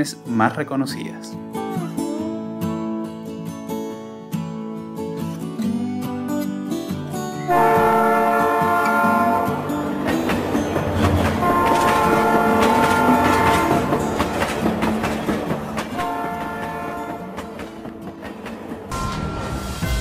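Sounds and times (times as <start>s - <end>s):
train horn blasts: 7.5s - 9.8s, 11.4s - 14.2s, 15.9s - 17.5s
train wheels clattering: 9.8s - 19.3s.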